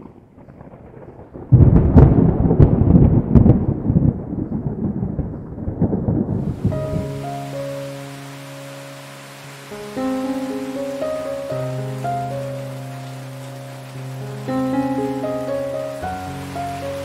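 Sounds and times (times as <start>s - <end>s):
thunder rumbling and crackling: 0.0s - 7.8s
heavy rain hissing: 6.4s - 17.0s.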